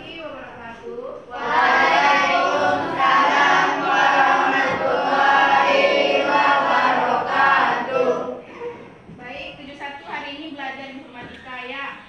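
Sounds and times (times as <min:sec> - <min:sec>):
students chanting in unison: 0:01.3 - 0:08.5.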